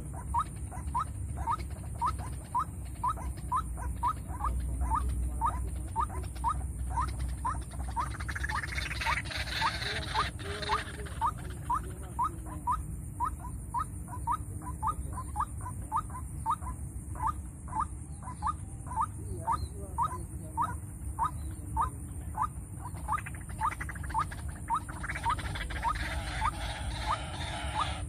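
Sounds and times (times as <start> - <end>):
bird calling rising notes: 22.8 - 28.0.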